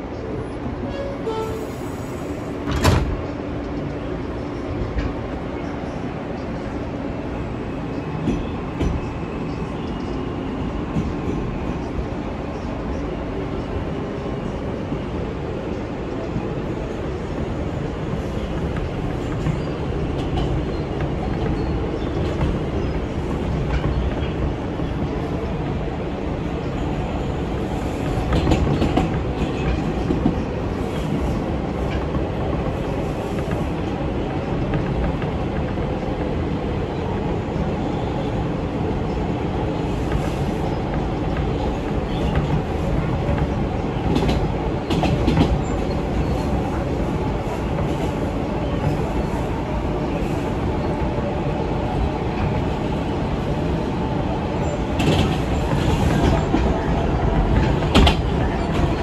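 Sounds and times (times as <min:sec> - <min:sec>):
train wheels rumbling on rails: 0:00.0 - 0:59.0
clacks over rail joints: 0:18.1 - 0:25.2, 0:28.0 - 0:35.8, 0:40.1 - 0:46.8, 0:54.9 - 0:59.0.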